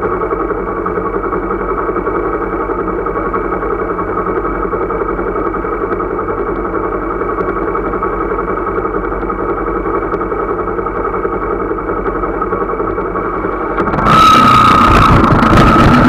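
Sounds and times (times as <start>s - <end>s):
vehicle engine idling: 0.0s - 16.0s
loud rush of traffic: 13.2s - 16.0s.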